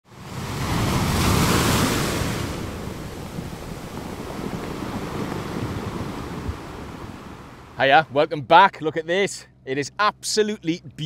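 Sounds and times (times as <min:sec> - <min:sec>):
wind rumbling on microphone: 0:00.1 - 0:07.8
sea waves washing: 0:00.1 - 0:11.0.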